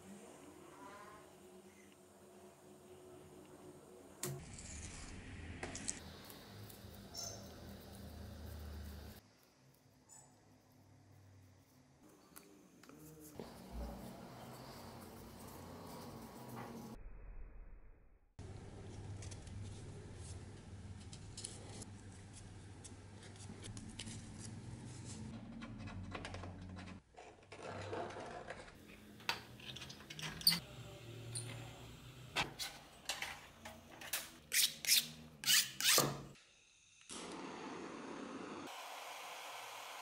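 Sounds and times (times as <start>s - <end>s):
scriber scratching brass sheet: 34.5s - 36.1s.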